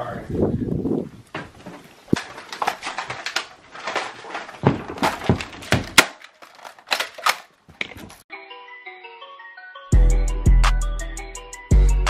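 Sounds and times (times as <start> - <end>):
rustles: 1.0 - 8.2.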